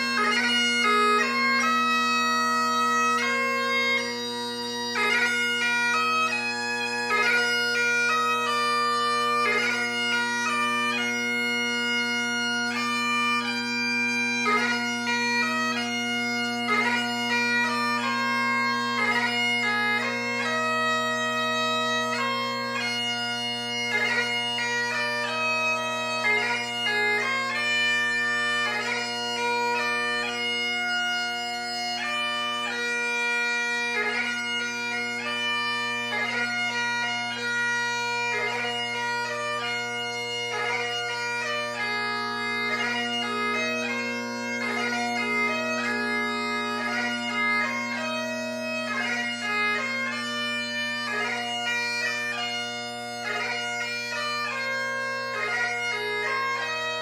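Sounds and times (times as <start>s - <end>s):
bagpipe chanter melody: 0.0s - 57.0s
bagpipe drones: 0.0s - 57.0s.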